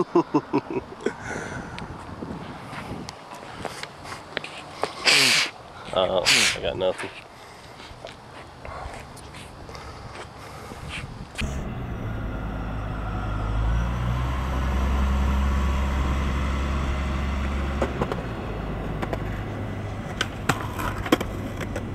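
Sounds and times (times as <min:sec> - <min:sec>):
diesel engine driving past: 0:11.4 - 0:21.9.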